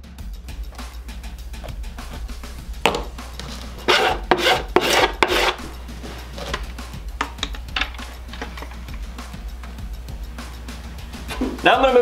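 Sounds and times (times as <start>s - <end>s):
plastic scraping against pipe: 2.8s - 6.8s.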